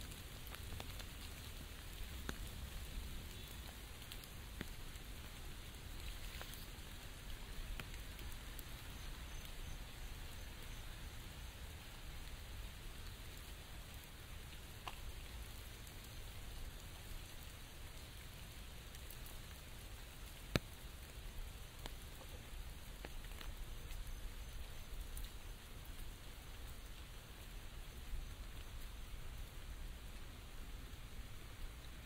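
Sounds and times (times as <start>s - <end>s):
rain hissing on an umbrella: 0.0s - 32.0s
raindrop taps: 0.1s - 5.4s, 14.8s - 15.4s, 20.5s - 20.8s, 21.8s - 24.1s.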